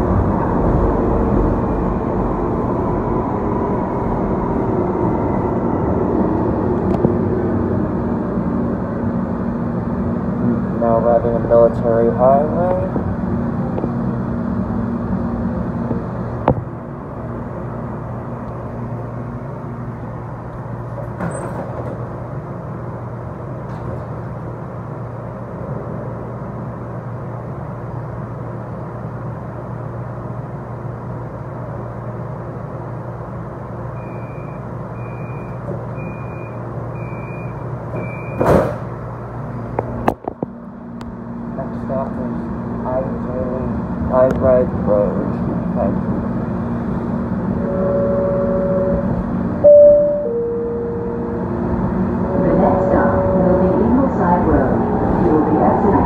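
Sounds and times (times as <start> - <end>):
light rail car equipment humming: 0.0 - 56.0
doors shutting with a thump: 21.0 - 22.0, 37.9 - 38.9
high door-warning beeps: 34.0 - 38.6, 47.6 - 51.3.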